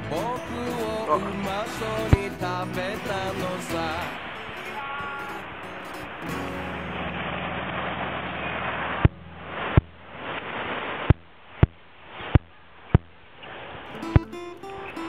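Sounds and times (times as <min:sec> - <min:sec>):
low hum: 0:05.4 - 0:13.4.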